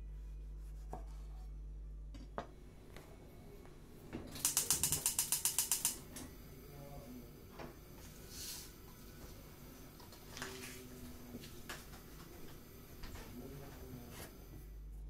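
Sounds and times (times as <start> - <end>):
gas igniter ticking: 4.4 - 6.0.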